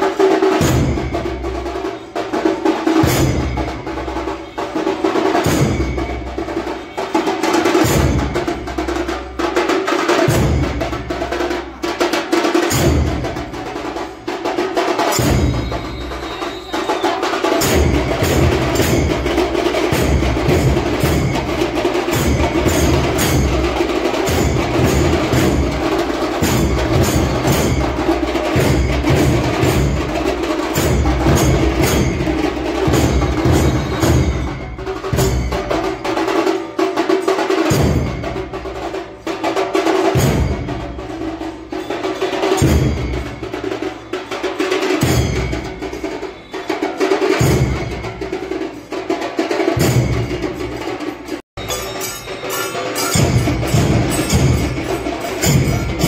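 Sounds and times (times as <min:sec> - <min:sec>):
drums pounding: 0:00.0 - 0:56.0
sharp clacking beat: 0:00.0 - 0:56.0
held tone: 0:15.1 - 0:36.4, 0:51.6 - 0:56.0.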